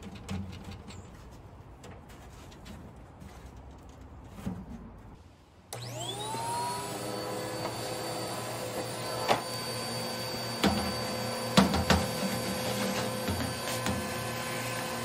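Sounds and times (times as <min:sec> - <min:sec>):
shop vacuum whine: 0:05.7 - 0:15.0.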